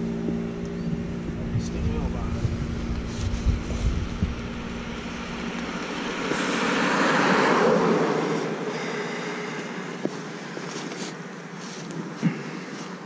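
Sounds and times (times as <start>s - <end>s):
vehicle passing: 0.0s - 11.0s
wind buffeting microphone: 0.3s - 8.6s.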